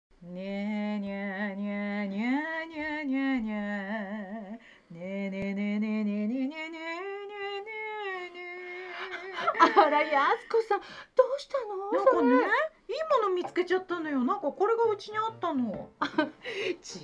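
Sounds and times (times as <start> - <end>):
woman humming: 11.9 - 12.6.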